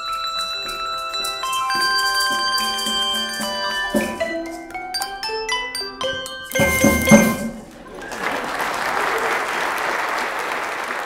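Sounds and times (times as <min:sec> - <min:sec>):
handbell choir ringing: 0:00.0 - 0:07.8
congregation applauding: 0:06.5 - 0:11.0.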